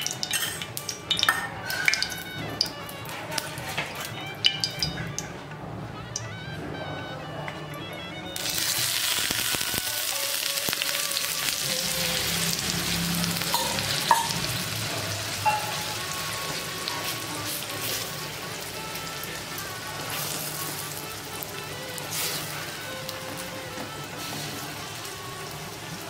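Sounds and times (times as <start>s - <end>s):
spoon knocking on pan: 0.0s - 2.8s, 3.9s - 5.4s, 13.5s - 14.6s, 15.4s - 16.2s
batter sizzling in hot oil: 0.0s - 5.2s, 8.4s - 26.0s.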